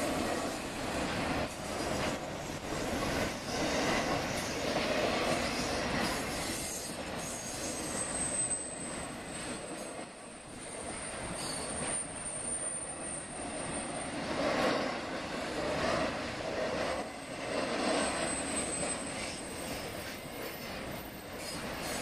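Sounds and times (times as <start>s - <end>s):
train wheels rumbling on rail: 0.0s - 22.0s
high wheel squeal: 6.8s - 9.2s, 10.8s - 14.2s, 17.9s - 22.0s.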